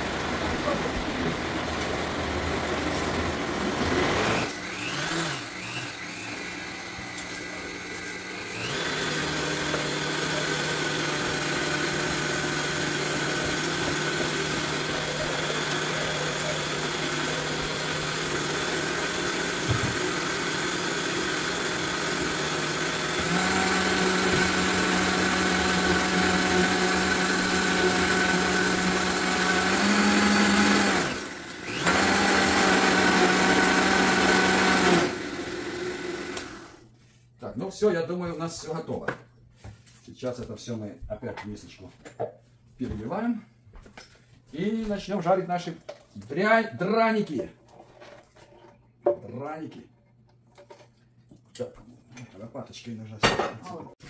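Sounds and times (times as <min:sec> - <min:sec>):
blender motor running: 0:00.0 - 0:36.8.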